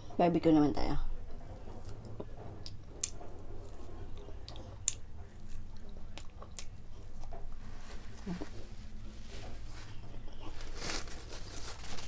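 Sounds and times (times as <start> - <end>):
person chewing: 1.8 - 7.3.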